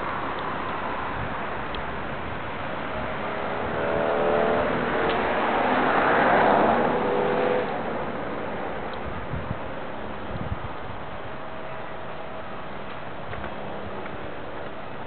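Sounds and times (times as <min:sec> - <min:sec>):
car passing by: 0:00.0 - 0:10.2.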